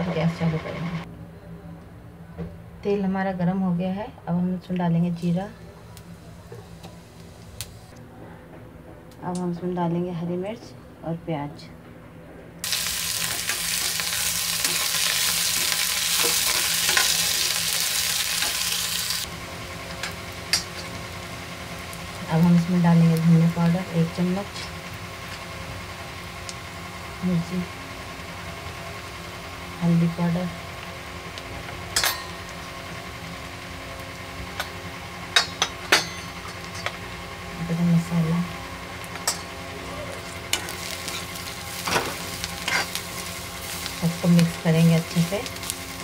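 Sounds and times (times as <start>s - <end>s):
onions sizzling in hot oil: 6.0s - 7.9s, 12.6s - 46.0s
steel spoon clinking on metal: 32.0s - 32.3s.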